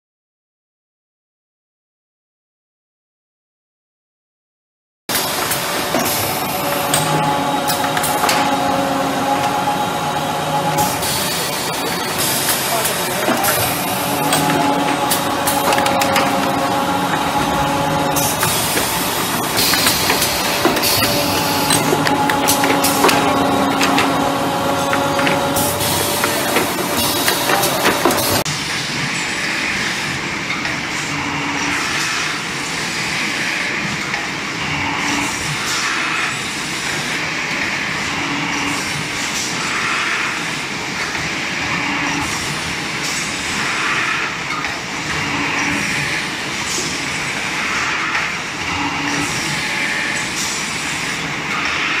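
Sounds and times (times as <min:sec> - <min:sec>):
paper cutting machine clatter: 0:10.7 - 0:28.4.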